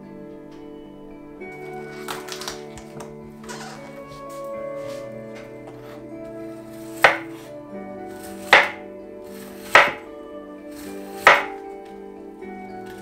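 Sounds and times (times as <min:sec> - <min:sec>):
knife cutting cabbage on board: 0:06.8 - 0:07.5, 0:08.2 - 0:10.0, 0:10.8 - 0:11.6.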